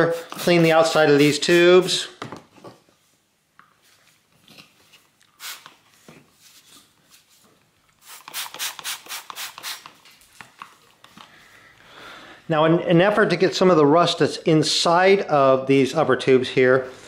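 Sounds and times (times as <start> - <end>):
trigger spray bottle spraying: 0.1 - 1.6, 5.4 - 5.8, 8.0 - 10.0.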